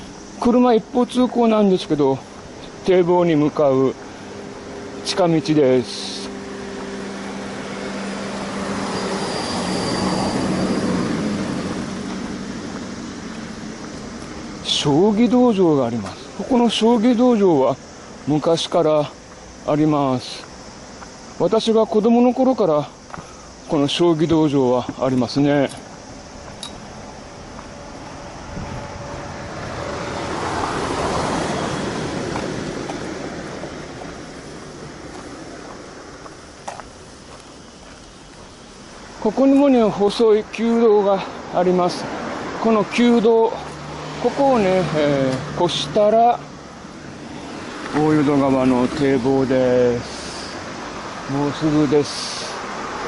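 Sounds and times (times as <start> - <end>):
minivan driving past: 2.8 - 16.8, 26.0 - 36.6, 38.7 - 53.0.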